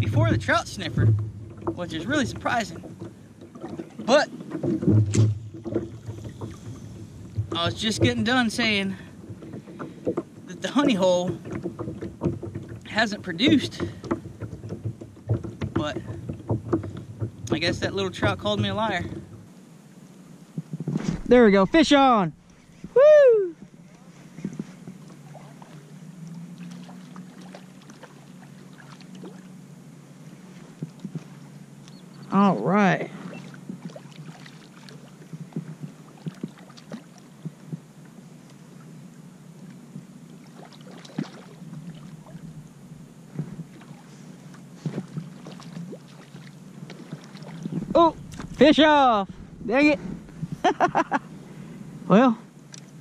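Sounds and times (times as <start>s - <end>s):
low steady hum: 0.0s - 53.0s
water lapping against hull: 0.0s - 53.0s
light knocks and taps: 9.2s - 12.9s, 13.5s - 19.5s
fish splashing: 25.0s - 31.8s, 33.1s - 37.4s, 40.3s - 43.0s, 43.6s - 50.6s.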